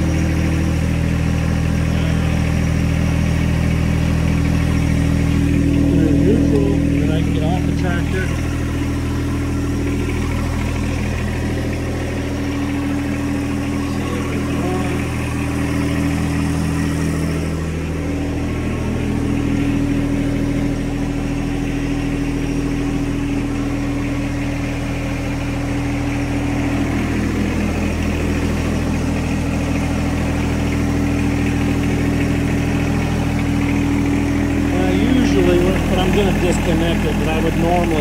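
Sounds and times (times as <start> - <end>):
diesel tractor engine idling: 0.0 - 38.0.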